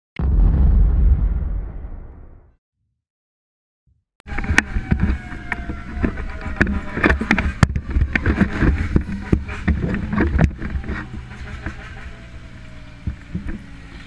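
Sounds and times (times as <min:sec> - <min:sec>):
low engine rumble: 0:04.3 - 0:14.0.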